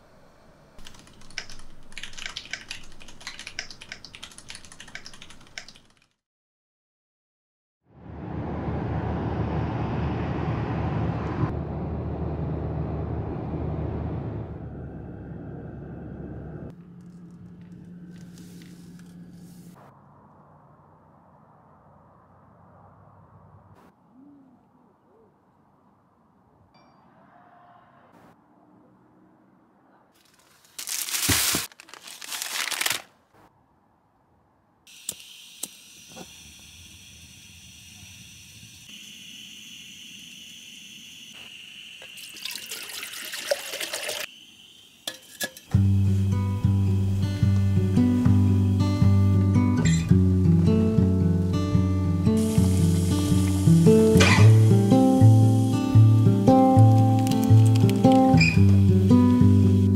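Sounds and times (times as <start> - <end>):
car road noise: 7.9 - 24.0
plastic packets crinkling: 30.2 - 33.2, 56.9 - 58.4
gas stove hissing: 34.9 - 42.4, 44.3 - 50.0, 51.3 - 59.8.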